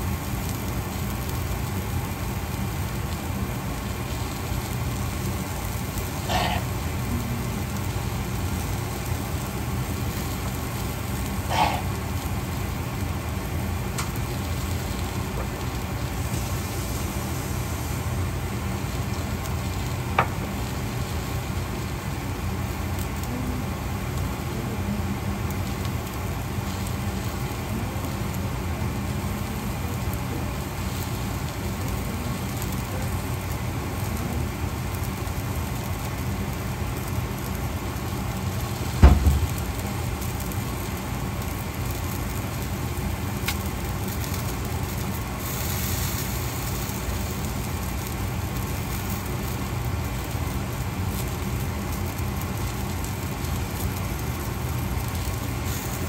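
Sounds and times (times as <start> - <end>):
vegetables sizzling in a pan: 0.0 - 56.0
sharp knock: 39.0 - 39.6.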